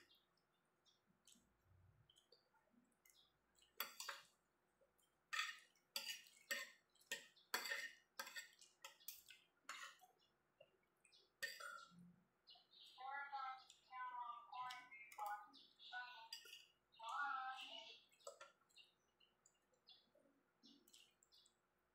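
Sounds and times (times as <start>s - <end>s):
cutlery scraping on ceramic plate: 3.8s - 4.3s, 5.3s - 10.0s, 11.4s - 11.9s.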